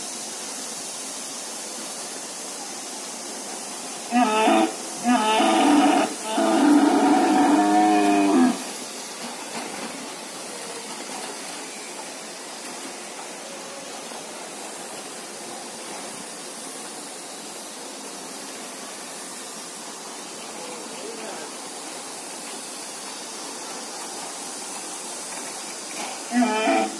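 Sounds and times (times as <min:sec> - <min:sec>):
steady hiss: 0:00.0 - 0:26.9
recorded dinosaur roar: 0:04.1 - 0:08.6, 0:26.3 - 0:26.9.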